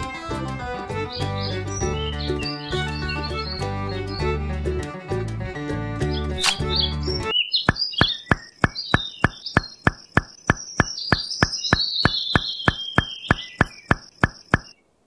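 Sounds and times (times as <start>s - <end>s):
high wavering chirps: 6.2s - 14.8s
evenly spaced clicks: 7.7s - 14.8s.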